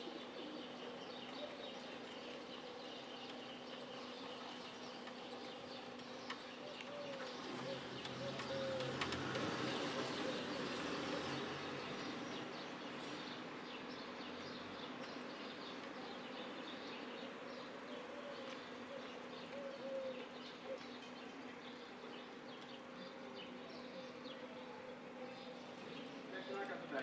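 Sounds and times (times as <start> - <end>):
light scattered ticks: 3.2 - 10.2.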